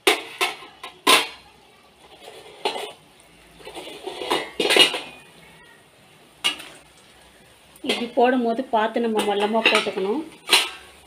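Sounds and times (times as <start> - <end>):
utensils knocking on steel pan: 0.0 - 1.4, 6.4 - 6.8, 7.8 - 8.3, 9.0 - 11.0
oil bubbling: 0.0 - 11.0.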